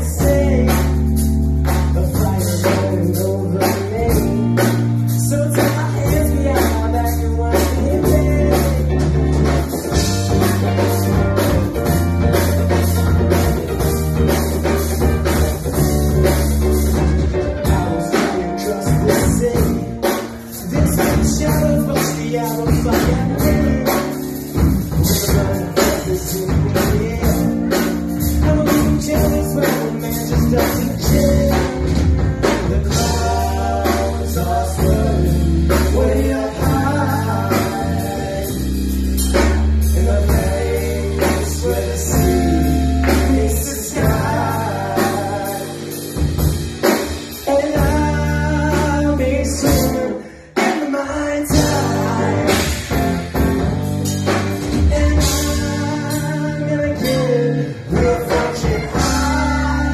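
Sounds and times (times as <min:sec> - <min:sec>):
bass guitar: 0:00.0 - 0:59.9
drums: 0:00.0 - 0:59.9
electric guitar: 0:00.0 - 0:59.9
person singing: 0:17.5 - 0:46.2, 0:47.4 - 0:53.1, 0:54.7 - 0:59.9.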